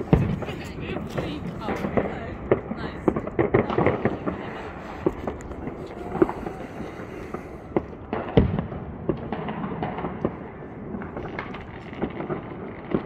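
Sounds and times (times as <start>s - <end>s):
distant fireworks bangs and pops: 0.0s - 13.0s.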